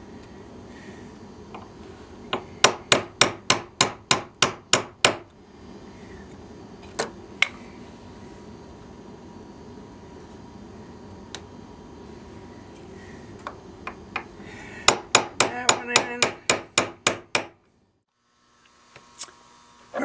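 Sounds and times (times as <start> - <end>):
small hammer tapping: 14.9 - 17.6.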